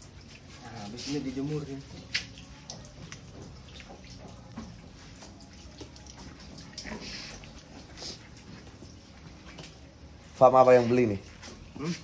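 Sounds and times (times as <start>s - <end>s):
water dripping on concrete: 0.0s - 10.0s.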